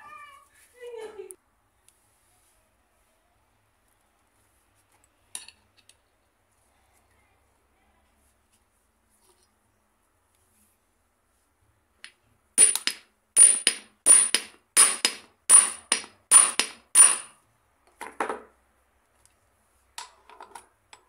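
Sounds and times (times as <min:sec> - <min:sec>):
hammer striking steel shaft: 0:12.6 - 0:17.4.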